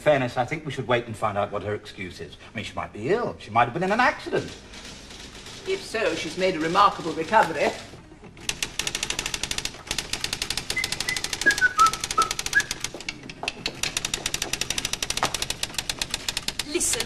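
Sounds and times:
typewriter keys striking: 0:04.4 - 0:17.0.

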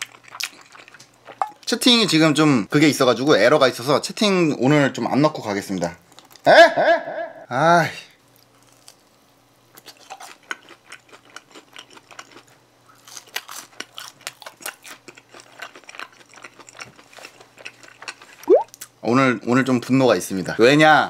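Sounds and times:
chewing with crunches: 0:00.0 - 0:01.7, 0:09.7 - 0:19.0.

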